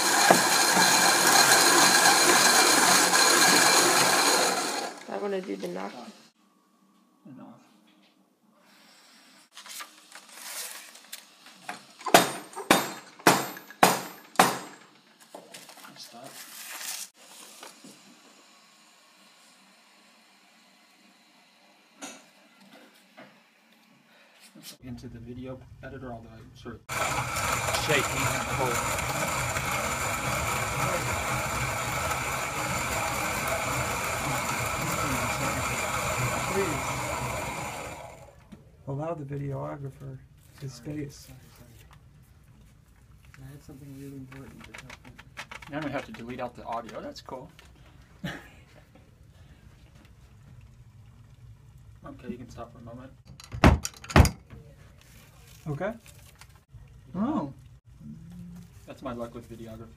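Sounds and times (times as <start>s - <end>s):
small motor running: 0.0s - 5.2s, 26.9s - 38.4s
rustling and scraping: 9.5s - 11.6s, 15.2s - 17.8s.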